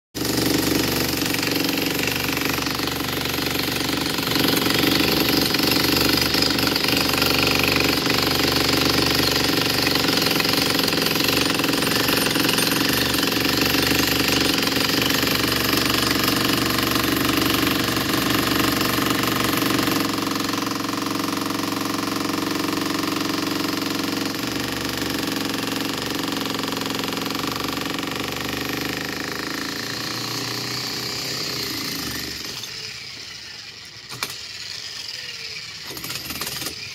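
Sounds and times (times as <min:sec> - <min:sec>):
demolition hammer breaking concrete: 0:00.2 - 0:33.0, 0:35.8 - 0:36.9.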